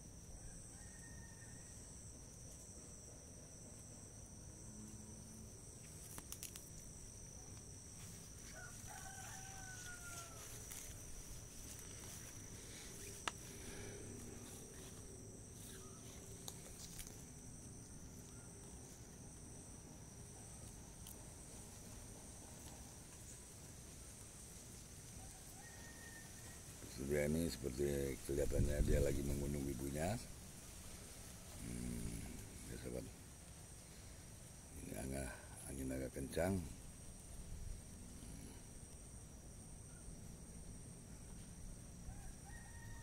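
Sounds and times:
high-pitched insect drone: 0.0s - 43.0s
distant rooster crow: 0.3s - 2.1s, 8.4s - 11.1s, 25.1s - 27.2s, 42.0s - 43.0s.

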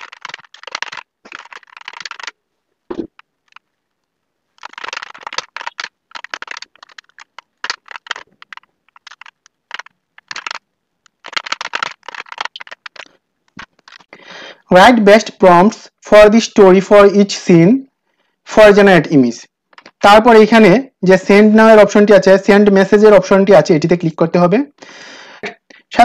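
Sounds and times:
keyboard typing: 0.0s - 3.6s, 4.6s - 14.2s.

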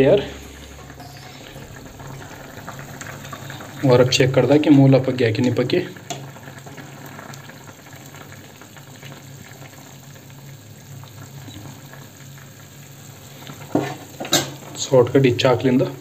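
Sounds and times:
steady low hum: 0.0s - 4.7s
curry bubbling and crackling: 1.6s - 15.2s.

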